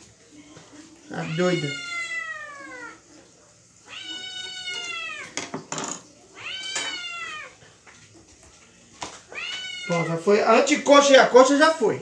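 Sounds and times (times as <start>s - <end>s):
cat meowing: 1.1s - 3.1s, 3.8s - 5.4s, 6.3s - 7.6s, 9.3s - 10.2s.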